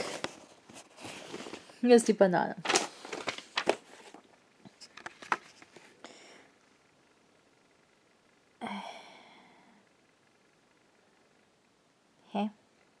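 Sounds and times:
cardboard and paper handling: 0.0s - 1.8s, 2.6s - 5.9s.

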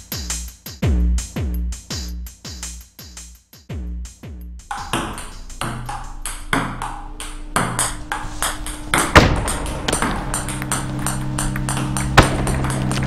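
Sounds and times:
sharp synth hits: 4.6s - 13.0s
sustained low synth tones: 4.6s - 13.0s.

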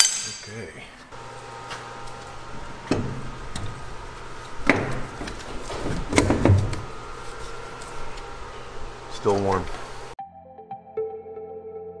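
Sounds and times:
heavy metal parts clunking: 0.0s - 0.7s
low shop hum: 0.0s - 10.2s.

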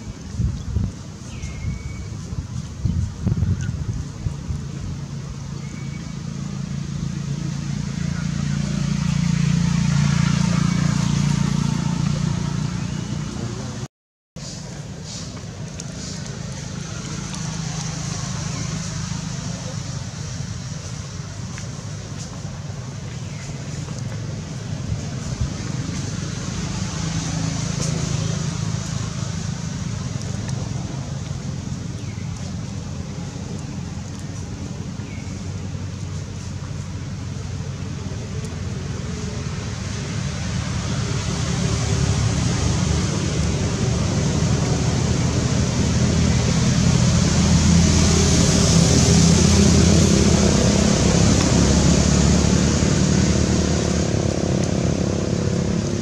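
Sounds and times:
low outdoor rumble: 0.0s - 56.0s
vehicle engine hum: 0.0s - 56.0s.

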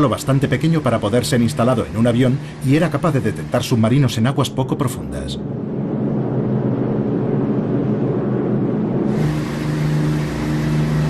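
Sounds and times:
low engine drone: 0.0s - 11.0s
steady low engine hum: 0.0s - 11.0s.

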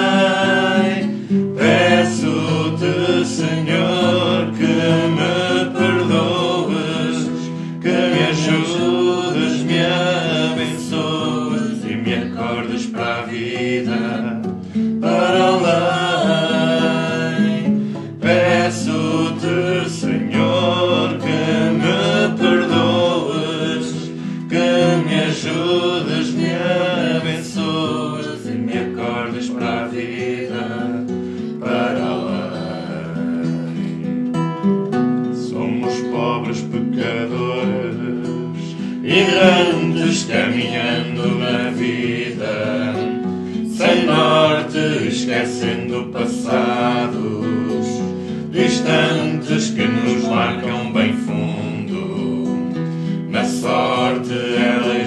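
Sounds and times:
man singing devotional song: 0.0s - 14.4s, 15.0s - 31.0s, 31.6s - 34.0s, 35.4s - 43.1s, 43.7s - 52.6s, 53.3s - 55.0s
nylon-string guitar: 0.0s - 55.0s.

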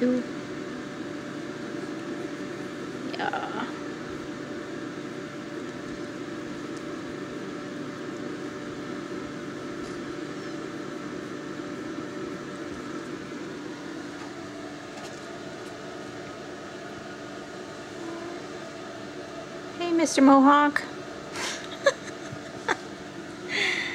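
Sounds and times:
mechanical hum with held tones: 0.0s - 23.9s.

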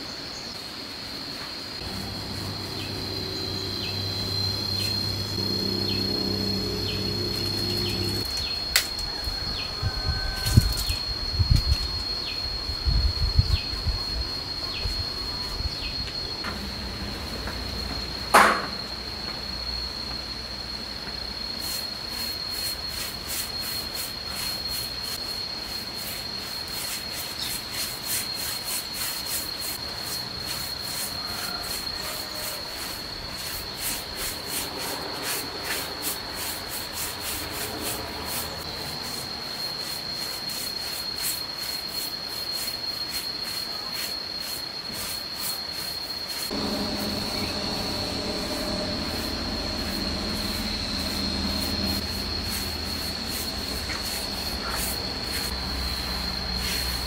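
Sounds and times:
high insect drone: 0.0s - 57.0s
paintbrush scrubbing wooden boards: 21.6s - 48.1s, 49.1s - 55.8s.

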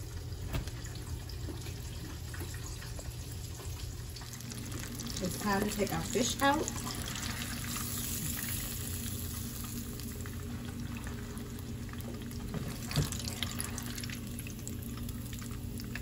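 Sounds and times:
hot oil sizzling: 1.1s - 16.0s.

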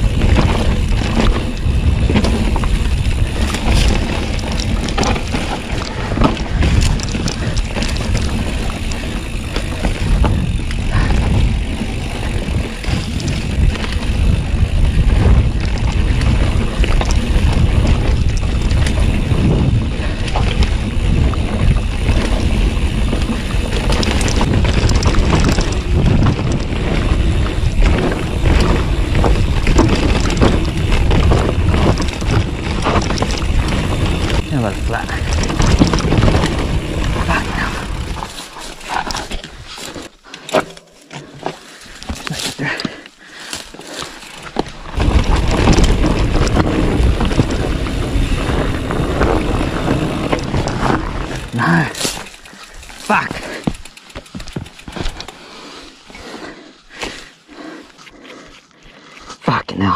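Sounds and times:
wind buffeting microphone: 0.0s - 38.3s, 44.6s - 53.6s
tyres rumbling over dirt: 0.0s - 58.2s
bike rattling and clattering: 0.0s - 59.9s.

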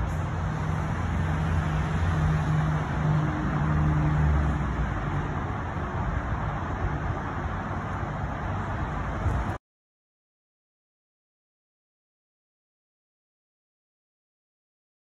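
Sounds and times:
road traffic engine hum: 0.0s - 9.6s.

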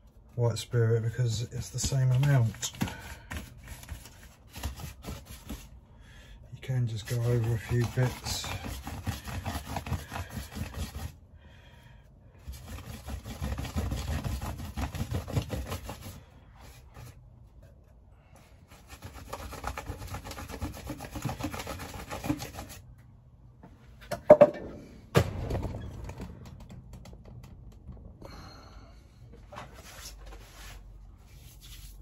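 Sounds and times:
paintbrush scrubbing fabric: 6.7s - 11.2s, 30.5s - 32.0s.

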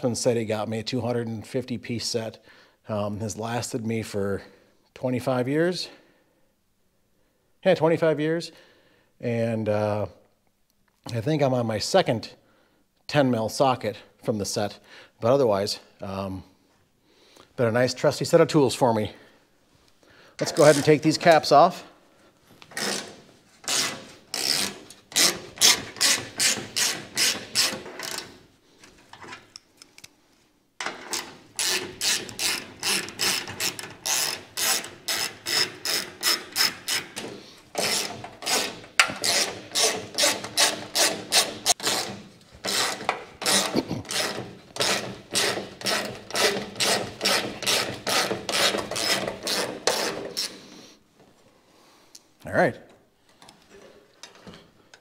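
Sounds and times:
hand ratchet clicking: 22.7s - 28.3s, 30.8s - 50.6s.

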